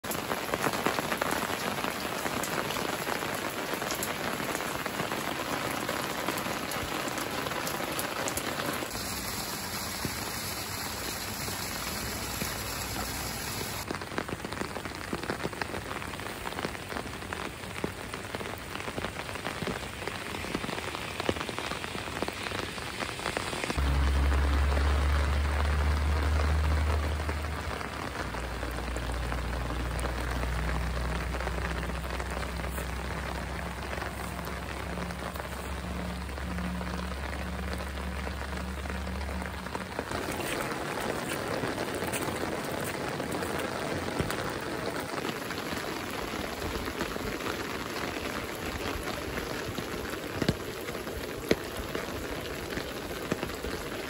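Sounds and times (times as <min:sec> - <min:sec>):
rain pattering: 0:00.0 - 0:54.0
low rumble: 0:23.8 - 0:40.2.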